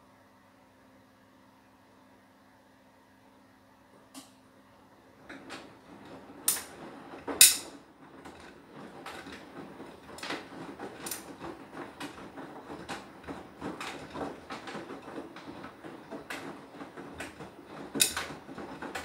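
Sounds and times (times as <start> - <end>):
washing machine clunks: 5.2 - 19.0
washing machine drum turning: 5.2 - 19.0.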